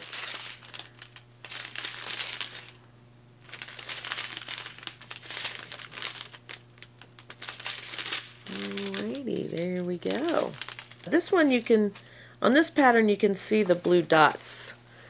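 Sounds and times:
plastic bags crinkling: 0:00.0 - 0:02.8, 0:03.4 - 0:12.3.

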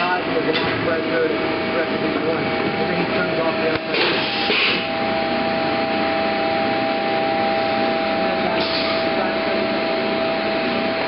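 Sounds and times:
machinery hissing: 0:01.2 - 0:05.1, 0:06.6 - 0:11.0.

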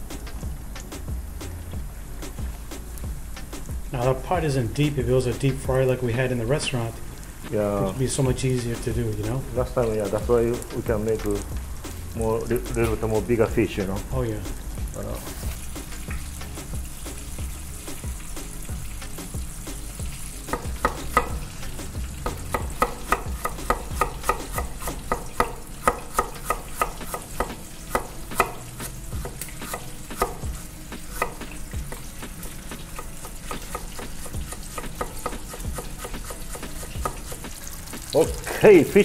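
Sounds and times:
fish frying in oil: 0:00.0 - 0:39.0
knife tapping on wooden cutting board: 0:20.5 - 0:21.4, 0:22.2 - 0:28.6, 0:29.2 - 0:32.1, 0:33.0 - 0:37.6.

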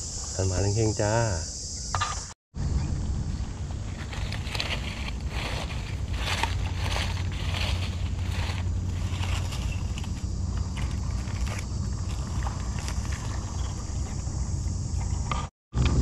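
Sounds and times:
steady low rumble: 0:02.6 - 0:16.0
dry leaves crackling and rustling: 0:03.5 - 0:14.4.

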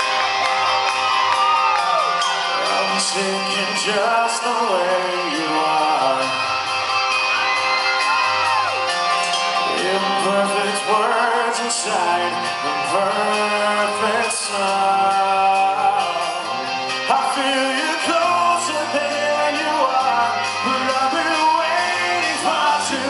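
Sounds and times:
drums: 0:00.0 - 0:23.0
electric guitars: 0:00.0 - 0:23.0
male lead vocal: 0:02.4 - 0:06.8, 0:09.4 - 0:23.0.

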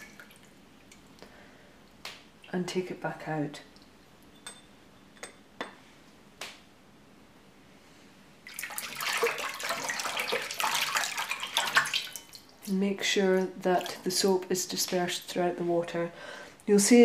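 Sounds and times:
water dripping into a bowl: 0:00.0 - 0:02.7, 0:03.6 - 0:05.4, 0:08.5 - 0:15.1
hand swishing water: 0:08.5 - 0:12.4.

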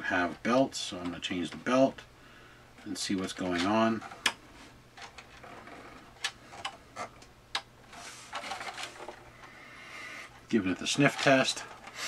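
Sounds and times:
rubbing rustle: 0:07.9 - 0:09.3.

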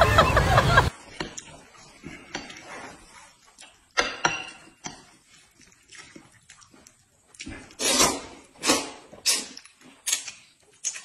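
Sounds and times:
chewing: 0:01.0 - 0:11.0
noodle slurping: 0:05.2 - 0:10.2.

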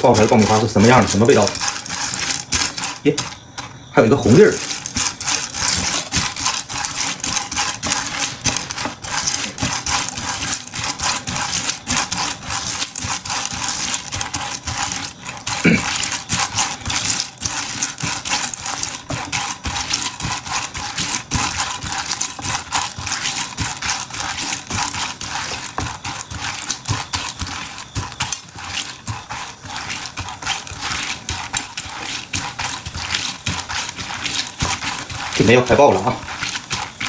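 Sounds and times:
kernels stirred in hot oil: 0:00.0 - 0:37.0.

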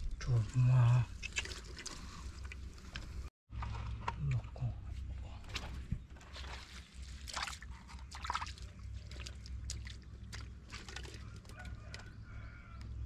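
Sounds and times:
feet splashing in shallow water: 0:05.5 - 0:11.3.

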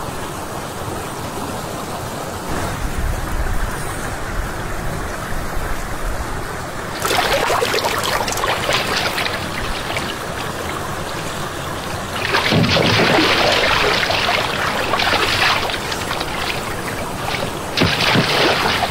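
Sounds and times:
hand splashing in shallow water: 0:07.0 - 0:18.9.

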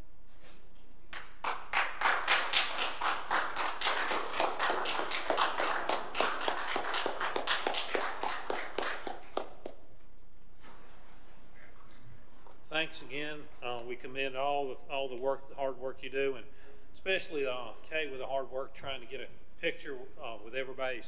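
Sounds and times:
group applauding: 0:01.1 - 0:09.8.

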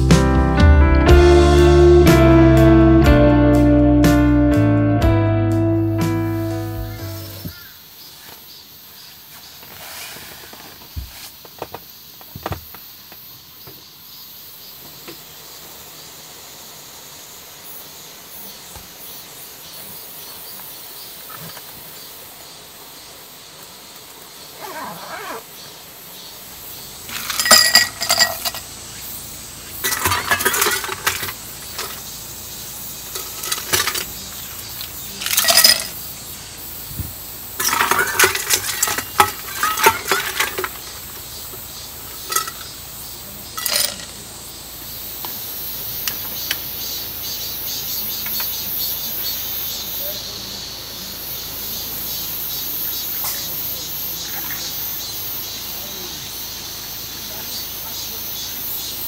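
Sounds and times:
dishes and utensils clinking: 0:27.1 - 0:28.7, 0:29.8 - 0:32.0, 0:33.1 - 0:34.2, 0:35.2 - 0:36.0, 0:37.6 - 0:40.8, 0:42.2 - 0:42.7, 0:43.6 - 0:44.1.

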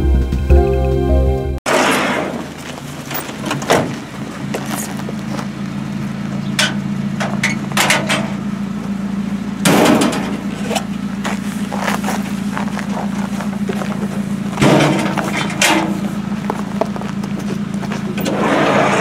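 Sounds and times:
van engine idling: 0:02.2 - 0:19.0
knocks and bangs: 0:14.6 - 0:16.0.

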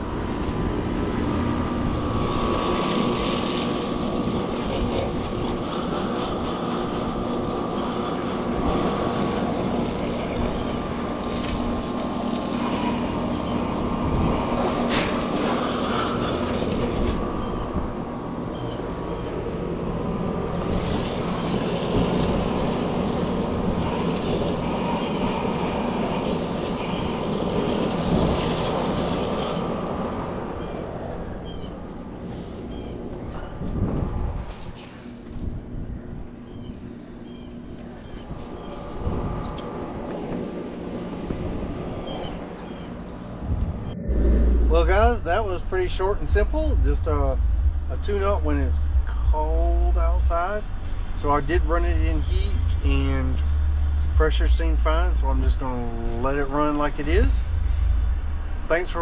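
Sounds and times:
heat pump humming: 0:00.0 - 0:59.0
hose water spraying: 0:01.7 - 0:17.6, 0:20.5 - 0:30.8.

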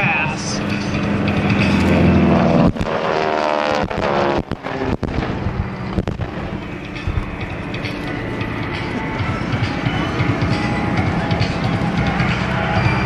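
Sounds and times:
propeller plane engine passing: 0:00.0 - 0:13.0
explosions rumbling: 0:01.5 - 0:07.9.

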